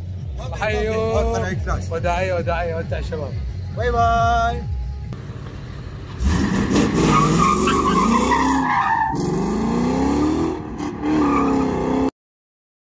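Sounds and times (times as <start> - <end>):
car engine revving hard: 6.2 - 12.1
tyres squealing on asphalt: 6.2 - 12.1.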